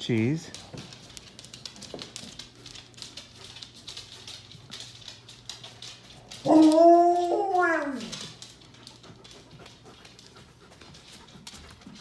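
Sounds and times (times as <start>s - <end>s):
dog claws clicking on wooden floor: 0.0s - 12.0s
dog howling: 6.3s - 8.4s.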